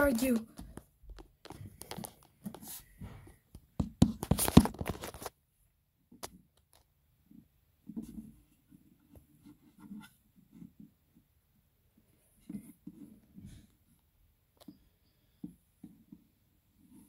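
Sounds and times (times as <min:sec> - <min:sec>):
fingers handling phone: 0:00.2 - 0:05.3.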